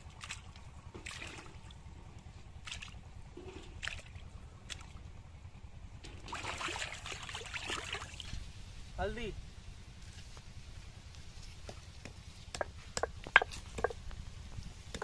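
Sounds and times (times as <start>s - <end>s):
wet splashes and drips: 0.0s - 1.8s, 2.6s - 5.1s, 6.0s - 8.4s.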